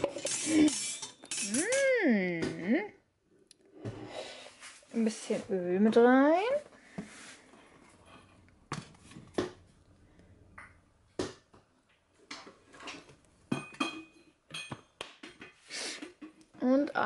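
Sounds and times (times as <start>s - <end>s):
pot and utensils knocking: 0.0s - 1.9s, 13.5s - 15.6s.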